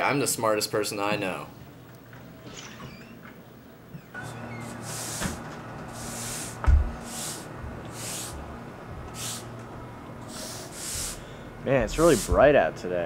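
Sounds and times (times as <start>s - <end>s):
broom sweeping concrete: 4.8s - 8.4s, 10.3s - 11.2s, 11.9s - 12.4s.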